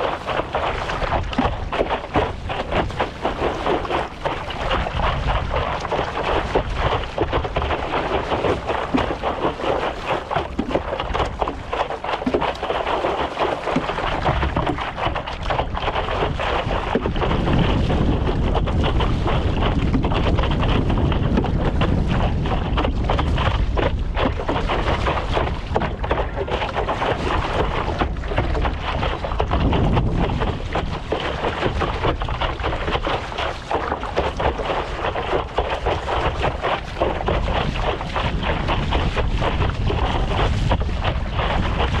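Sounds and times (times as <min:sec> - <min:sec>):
water splashing from paddle: 0:00.0 - 0:42.0
wind buffeting microphone: 0:00.0 - 0:42.0.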